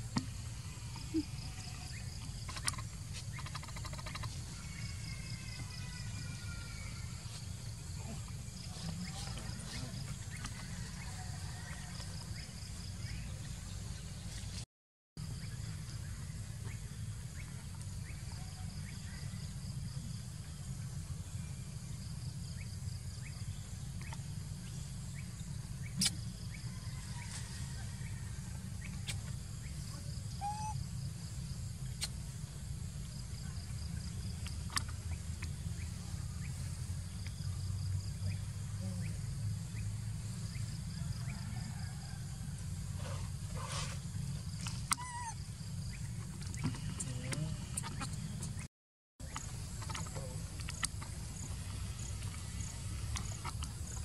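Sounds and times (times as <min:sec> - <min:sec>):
insects trilling: 0:00.0 - 0:13.8, 0:15.2 - 0:54.0.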